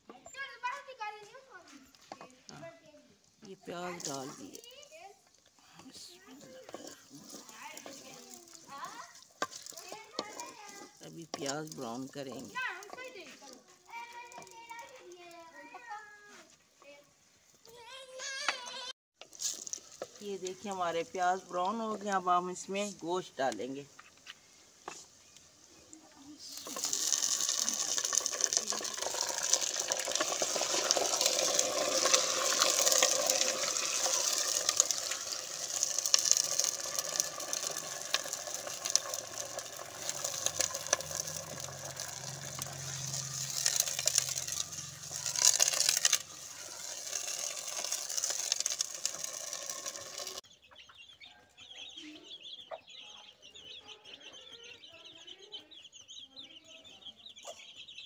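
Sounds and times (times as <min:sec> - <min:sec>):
chicken frying in hot oil: 0:03.6 - 0:05.0, 0:06.1 - 0:15.2, 0:26.3 - 0:50.5
hen and chicks calling: 0:50.4 - 0:58.0.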